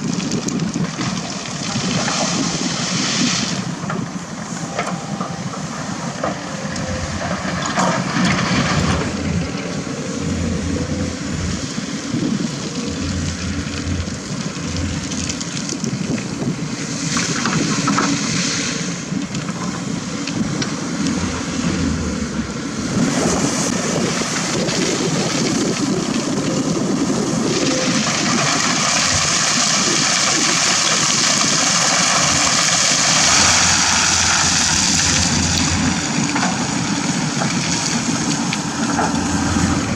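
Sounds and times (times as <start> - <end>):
gravel pouring into truck bed: 0.0 - 3.7, 24.0 - 38.5
excavator diesel engines: 0.0 - 39.9.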